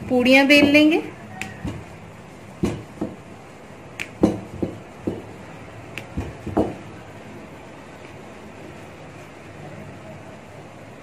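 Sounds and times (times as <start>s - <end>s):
rolling pin knocking on stone board: 0.6s - 0.9s, 1.6s - 1.9s, 2.6s - 3.2s, 4.0s - 5.3s, 6.0s - 6.8s.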